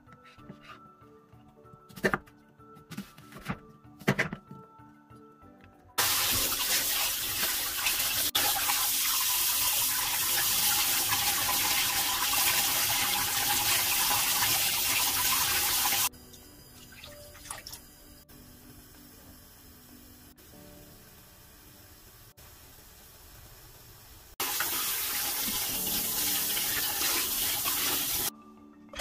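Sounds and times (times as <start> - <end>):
pot boiling: 6.0 - 20.0, 20.8 - 28.3.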